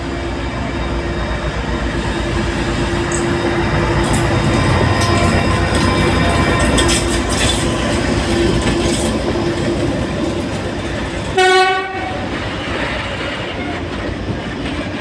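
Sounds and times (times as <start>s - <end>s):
freight train wheels clacking on rails: 0.0s - 15.0s
train horn blast: 11.4s - 12.4s.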